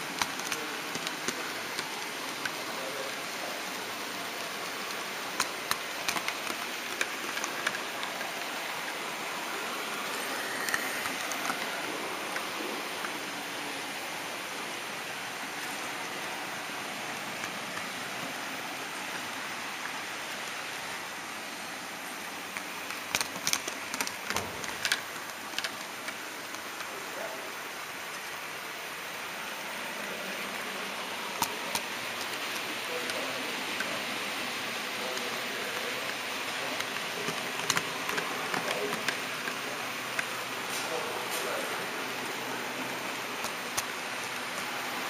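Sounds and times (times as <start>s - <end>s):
sharp clicks: 0.0s - 2.6s, 4.4s - 8.6s, 22.5s - 26.9s.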